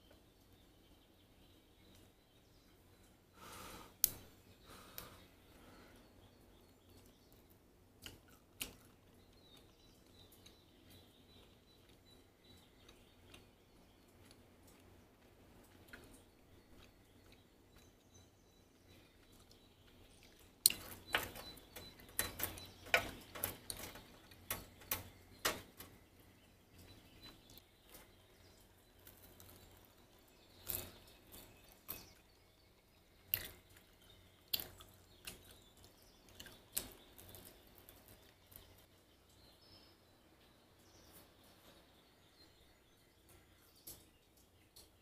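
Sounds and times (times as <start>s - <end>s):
faint steady background noise: 0.0s - 45.0s.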